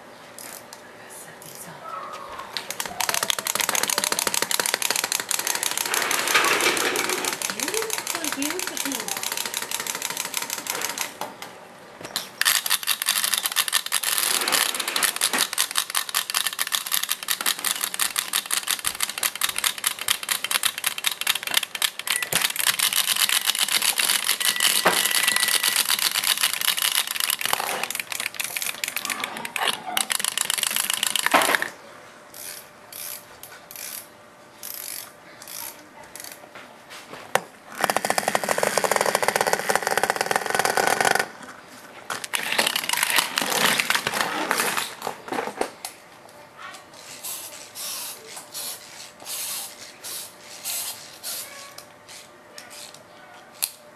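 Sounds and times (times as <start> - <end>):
wind-up toys clicking: 0.4 - 0.8, 2.5 - 11.2, 12.2 - 36.4, 37.8 - 41.5, 42.2 - 45.1, 46.9 - 53.8.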